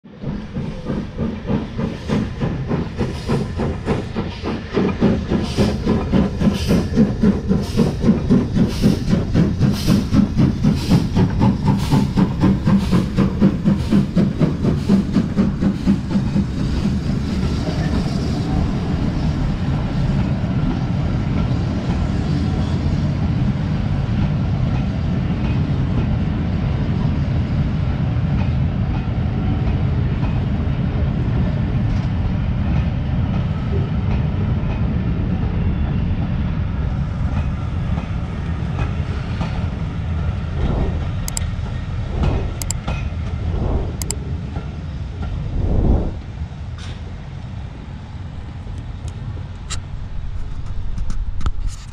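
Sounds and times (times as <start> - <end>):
steam locomotive exhaust chuffing: 0.1 - 22.5, 37.2 - 47.2.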